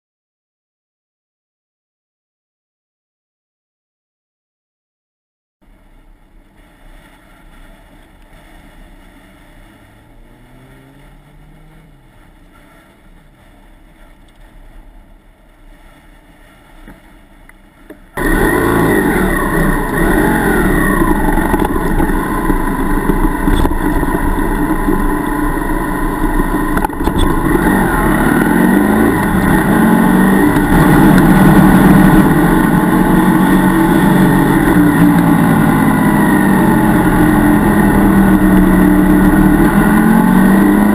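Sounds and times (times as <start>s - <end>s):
faint passing traffic: 5.6s - 40.9s
motorcycle engine revving: 8.5s - 13.7s, 18.1s - 40.9s.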